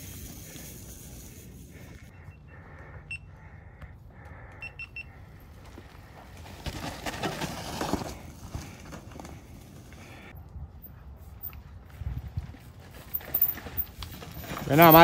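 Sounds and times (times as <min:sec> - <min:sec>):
mountain bike riding through mud: 0:00.0 - 0:02.1, 0:05.3 - 0:10.3, 0:11.4 - 0:15.0.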